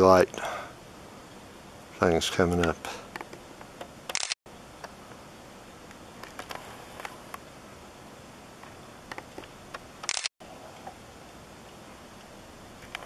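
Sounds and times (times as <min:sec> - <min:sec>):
low background hiss: 0:00.0 - 0:13.0
camera handling clicks: 0:04.1 - 0:04.3.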